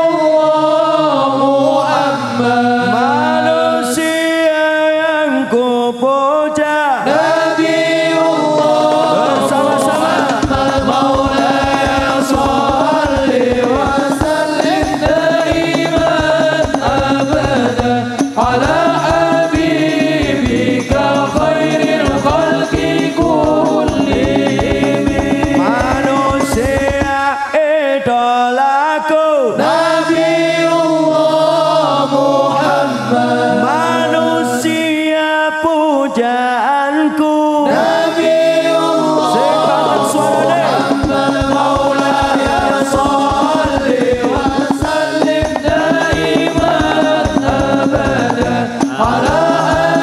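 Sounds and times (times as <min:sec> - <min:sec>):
men singing through pa system: 0:00.0 - 0:50.0
low drum beat: 0:08.1 - 0:27.3, 0:39.5 - 0:50.0.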